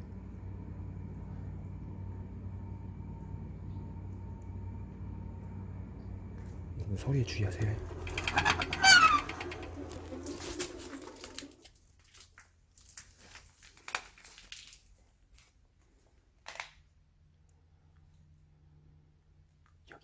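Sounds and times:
low hum: 0.0s - 11.7s.

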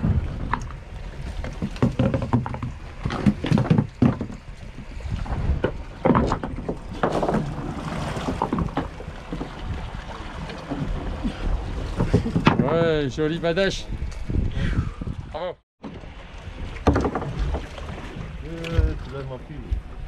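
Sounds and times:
low rumble of boat and sea: 0.0s - 20.0s
knocks against boat deck: 1.5s - 4.4s, 5.6s - 7.6s, 12.0s - 12.9s.

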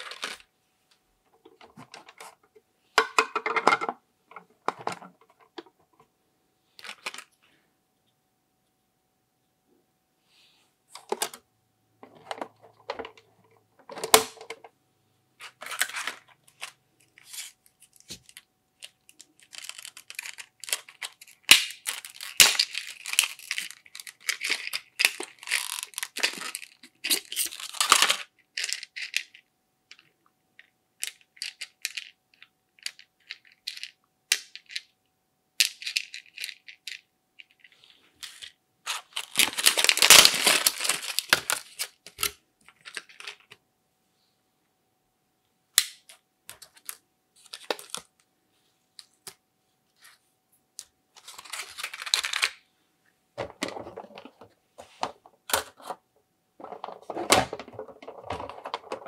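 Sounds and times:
plastic packaging crinkling: 0.0s - 0.5s, 15.4s - 29.3s, 38.2s - 43.5s, 46.6s - 48.2s, 51.2s - 52.6s, 56.6s - 59.0s
plastic toy pots clicking: 56.6s - 59.0s.

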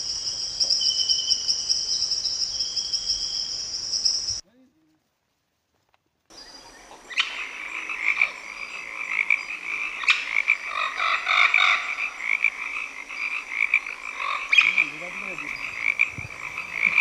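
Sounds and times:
chorus of calling animals: 6.4s - 17.0s.

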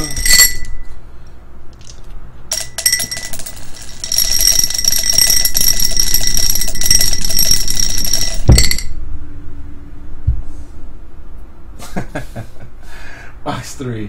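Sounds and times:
die rattling in a glass: 0.0s - 0.9s, 1.8s - 9.0s
glass ringing: 0.0s - 1.0s, 2.5s - 9.0s.

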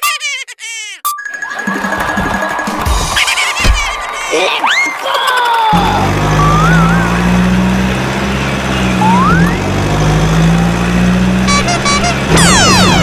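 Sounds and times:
quick beeps: 1.0s - 2.1s
truck engine: 5.4s - 13.0s
whistle: 6.4s - 7.2s.

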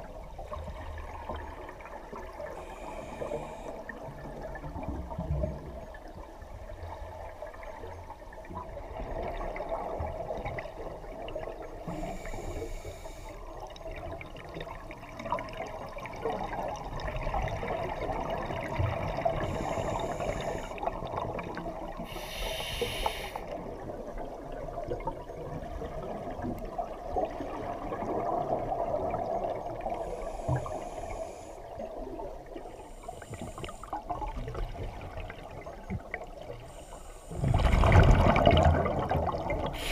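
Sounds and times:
regulator bubbles gurgling underwater: 0.0s - 39.9s
hissing breaths through regulator: 2.6s - 3.8s, 11.9s - 13.4s, 19.4s - 20.8s, 22.0s - 23.6s, 30.0s - 31.6s, 32.8s - 34.0s, 36.6s - 37.5s.

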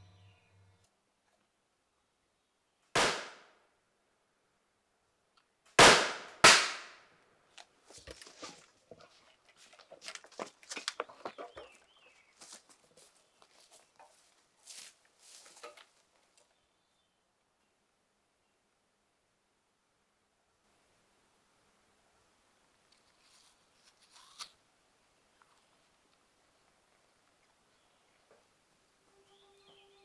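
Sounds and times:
loud sharp bangs: 3.0s - 3.5s, 5.8s - 7.0s
rustling: 7.5s - 16.5s, 22.8s - 24.6s.

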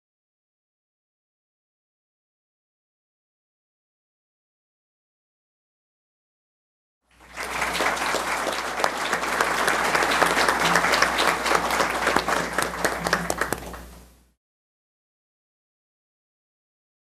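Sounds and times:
audience applause: 7.1s - 14.1s
low steady hum: 7.2s - 14.4s.

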